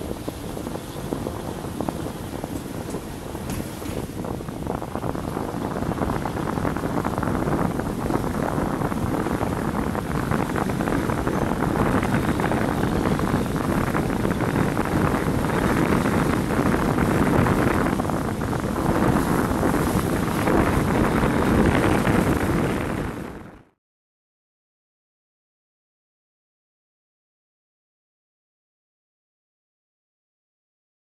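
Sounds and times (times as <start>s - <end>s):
vehicle road and wind noise: 0.0s - 23.8s.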